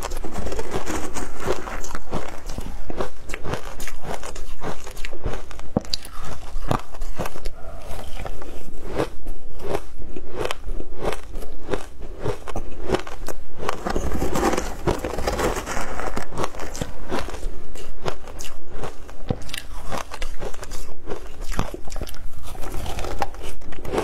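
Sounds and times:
shaved ice crunching: 13.7s - 17.3s.

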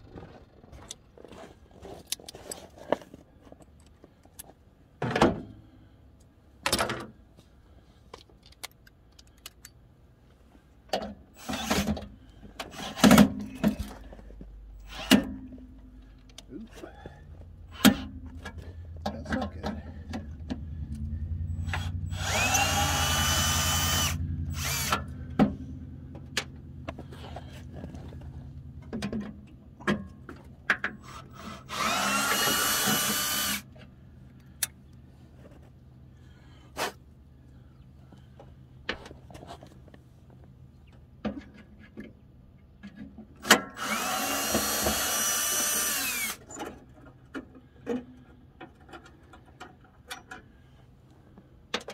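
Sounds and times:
cordless drill running: 21.6s - 25.1s, 31.1s - 33.7s, 43.8s - 46.5s.

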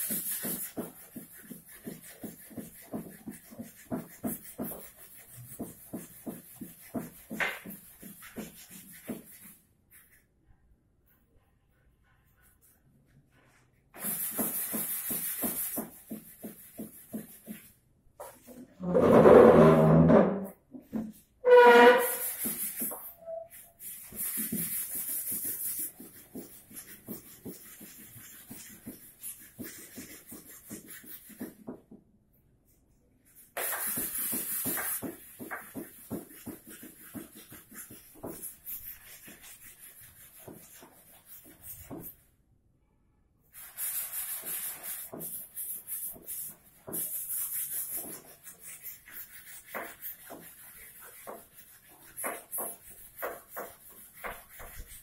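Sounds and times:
hand rubbing wood: 21.0s - 31.8s, 33.6s - 42.2s, 43.9s - 55.0s.

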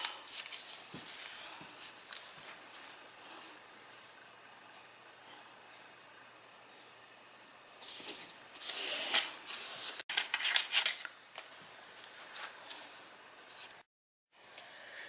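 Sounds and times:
paper and card rustling: 0.0s - 3.1s, 7.8s - 12.9s.

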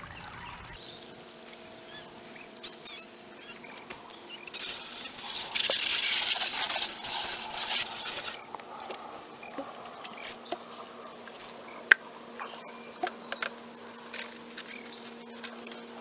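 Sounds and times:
hose spraying water into buckets: 0.7s - 11.7s.

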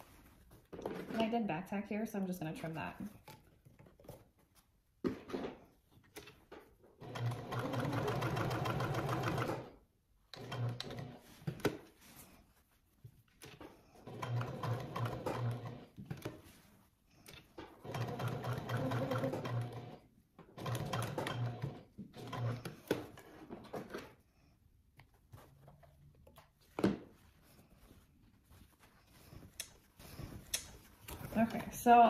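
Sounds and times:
sewing machine stitching: 7.0s - 11.3s, 14.0s - 16.3s, 17.7s - 24.1s.

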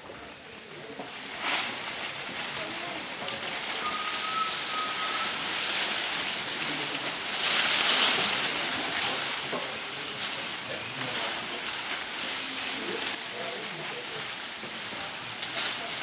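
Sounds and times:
steady background hiss: 0.0s - 16.0s
monkey chirps: 3.8s - 5.4s, 13.0s - 13.4s, 14.2s - 14.6s.

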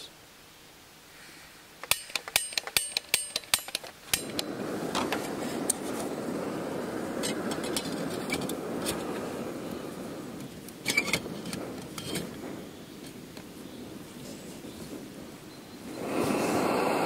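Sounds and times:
gas burner hissing: 1.1s - 17.0s
stove igniter clicks: 1.8s - 5.8s.

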